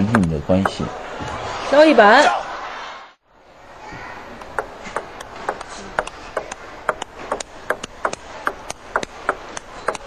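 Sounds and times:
background noise: 0.0 - 10.0
table tennis ball clicking: 4.4 - 10.0.

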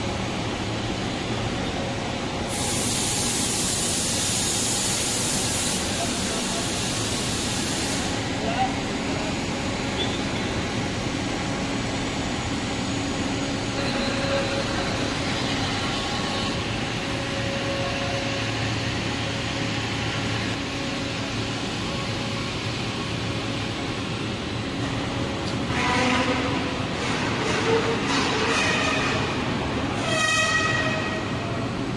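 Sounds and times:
industrial machine noise: 0.0 - 31.9.

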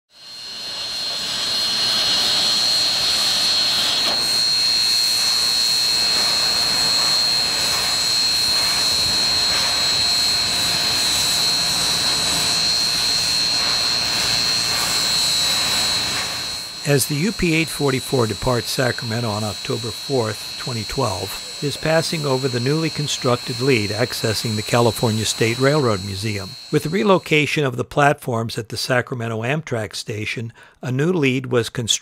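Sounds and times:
steam hissing: 0.1 - 27.5
high steady whine: 0.1 - 28.2.

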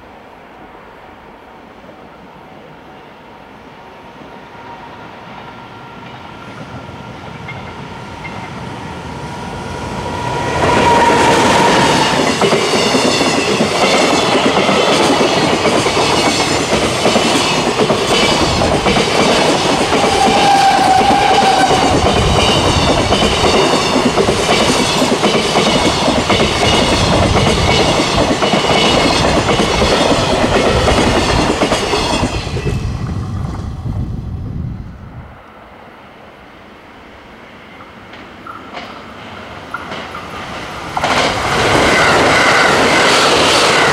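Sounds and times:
train wheels clattering: 10.0 - 33.6, 37.8 - 43.9.

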